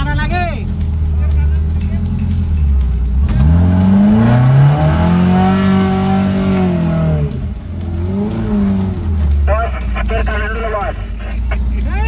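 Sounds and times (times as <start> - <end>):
engine revving hard: 2.0 - 10.6.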